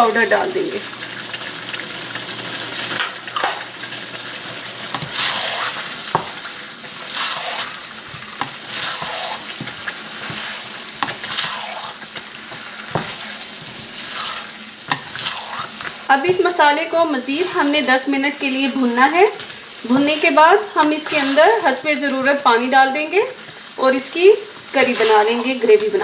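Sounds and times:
potatoes sizzling in oil: 0.0s - 26.0s
spoon knocking on pan: 4.9s - 5.2s, 6.1s - 6.4s, 12.5s - 13.2s
wooden spoon scraping pan: 7.1s - 16.6s, 17.2s - 18.2s, 19.2s - 22.4s, 24.7s - 25.9s.

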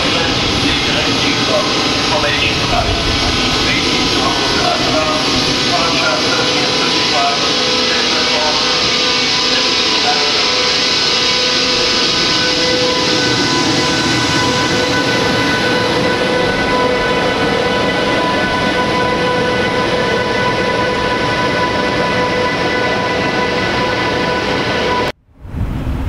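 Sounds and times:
wind on microphone: 0.0s - 5.8s, 10.9s - 22.7s, 23.6s - 26.0s
locomotive whining tones: 0.0s - 25.2s
wheels rumbling on rail: 0.0s - 26.0s.

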